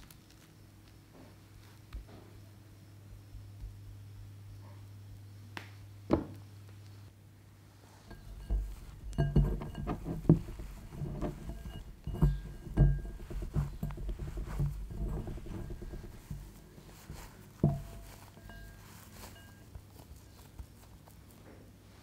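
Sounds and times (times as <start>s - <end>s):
low hum: 8.1s - 19.6s
fingers clinking on bowl: 8.1s - 20.8s
spatula spreading frosting: 8.1s - 21.4s
hands squishing moist cake: 10.7s - 22.0s.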